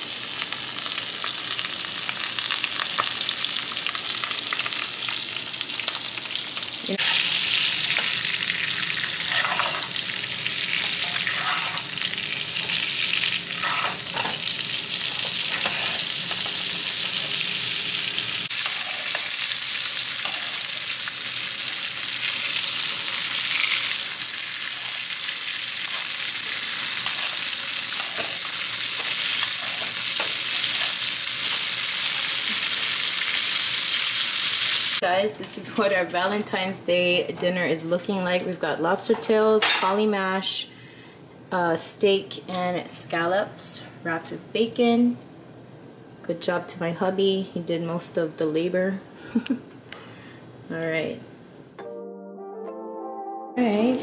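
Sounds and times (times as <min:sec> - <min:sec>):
steak sizzling in butter: 0:00.0 - 0:35.0.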